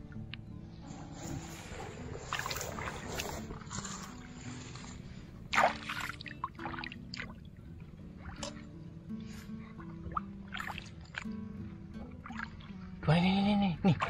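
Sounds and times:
soft background tune: 0:00.0 - 0:14.0
feet wading through water: 0:01.2 - 0:13.0.

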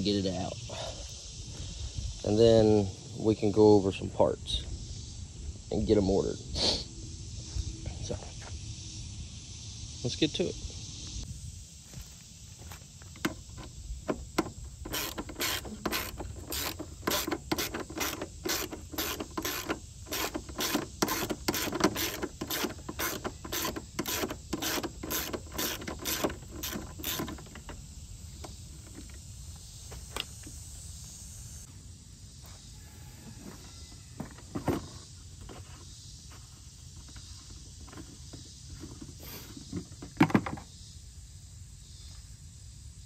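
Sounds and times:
ratchet wrench clicking: 0:14.8 - 0:27.6.

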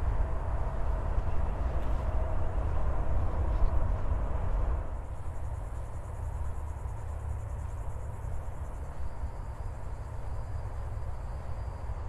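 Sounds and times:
steady low rumble: 0:00.0 - 0:12.0
insects trilling: 0:05.0 - 0:12.0.

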